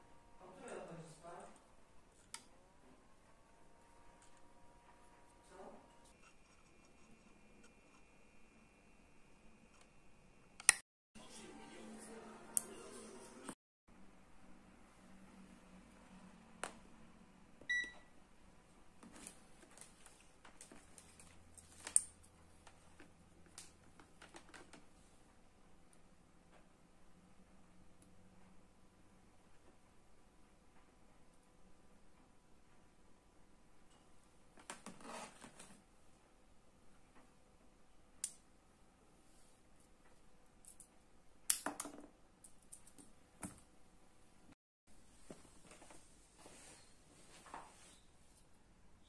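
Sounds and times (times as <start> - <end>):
light clicks and taps of wires: 38.2 - 38.4.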